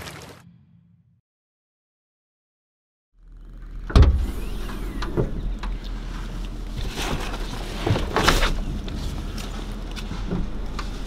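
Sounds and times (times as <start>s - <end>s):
steady low hum: 3.2s - 11.0s.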